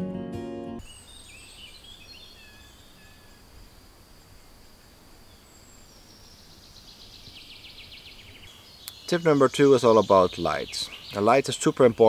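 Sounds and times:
acoustic guitar music: 0.0s - 0.8s
birds chirping: 0.8s - 3.8s, 5.3s - 12.0s.

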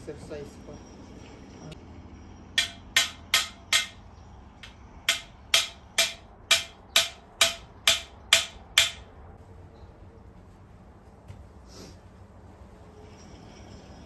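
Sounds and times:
hammer striking stake: 2.6s - 4.0s, 4.6s - 9.1s.

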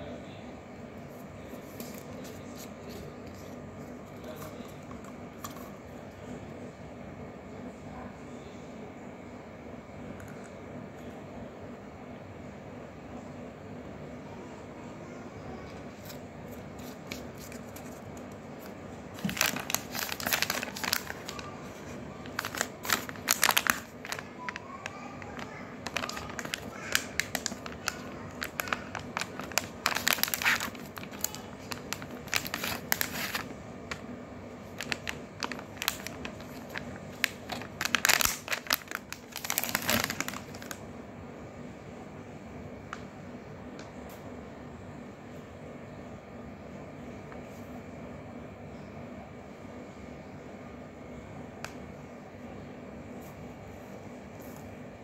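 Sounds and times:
low background hum: 0.0s - 55.0s
plastic packaging crinkling: 15.8s - 40.8s.

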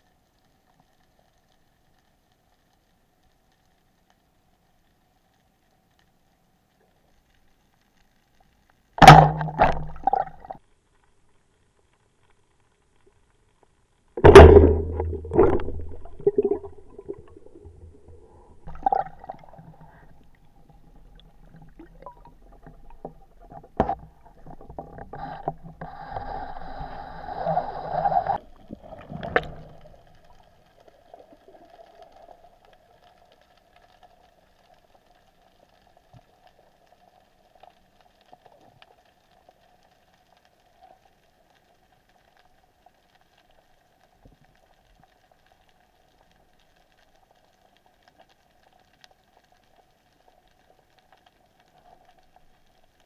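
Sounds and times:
sharp underwater knocks: 9.0s - 10.5s, 14.2s - 16.6s
gurgling bubbling water: 9.0s - 10.6s, 14.2s - 32.7s.

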